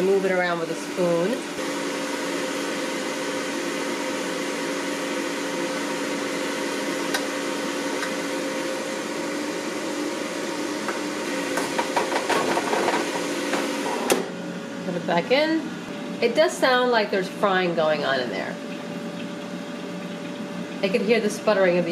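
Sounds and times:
fan humming: 0:00.0 - 0:21.9.

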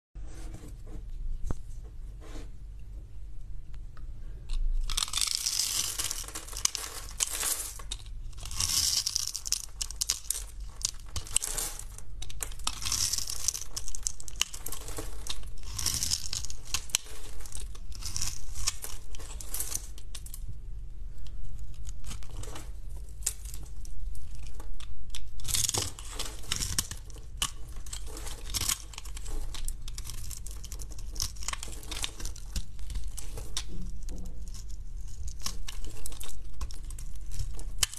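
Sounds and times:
knife crunching through hard soap: 0:04.5 - 0:19.8, 0:24.3 - 0:37.9.

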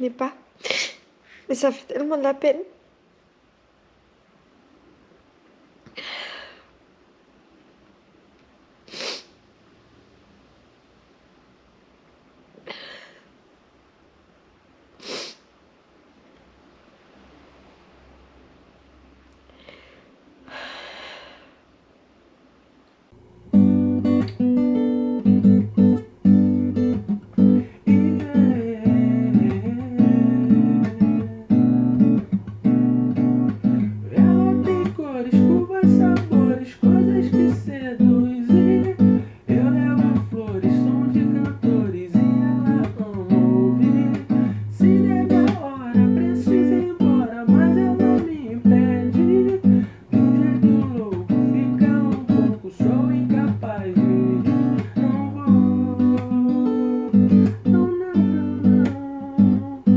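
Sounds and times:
breathy puff of air: 0:08.9 - 0:09.4, 0:15.0 - 0:15.5, 0:19.5 - 0:21.6
strummed acoustic guitar music: 0:23.2 - 0:59.9.

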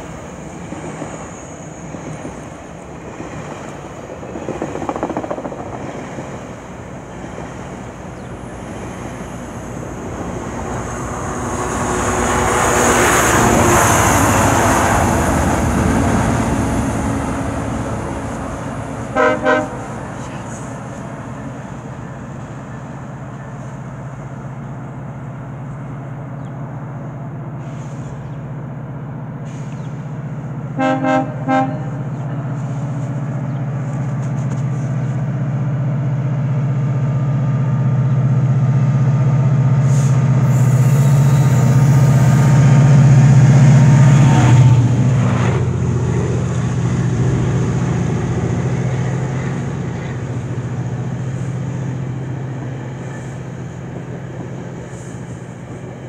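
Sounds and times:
train passing: 0:00.0 - 0:56.0
train horn toots: 0:19.1 - 0:20.4, 0:30.8 - 0:32.1.

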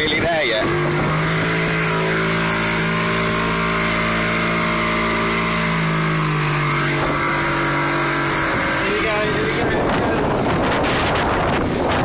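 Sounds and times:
outboard motor running: 0:00.0 - 0:12.0
rush of boat wake: 0:00.0 - 0:12.0
wind on microphone: 0:06.0 - 0:12.0.

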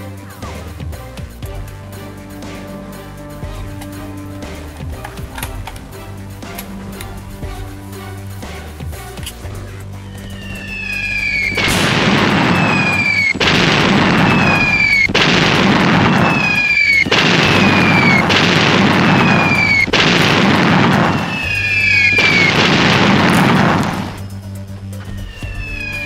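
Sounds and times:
short falling whistle: 0:10.0 - 0:11.8, 0:14.2 - 0:15.1, 0:19.1 - 0:19.9, 0:25.1 - 0:26.0
shells exploding: 0:11.0 - 0:24.3.

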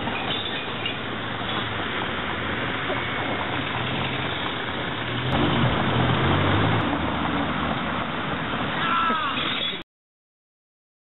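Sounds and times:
road noise: 0:00.0 - 0:09.8
car engine passing: 0:01.1 - 0:09.3.

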